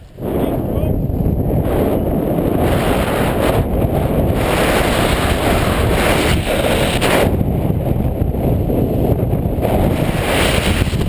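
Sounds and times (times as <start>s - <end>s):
wind rushing over microphone: 0.0s - 11.0s.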